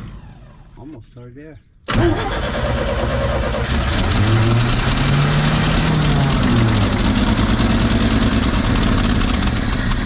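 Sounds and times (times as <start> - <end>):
truck engine running: 2.0 - 10.0.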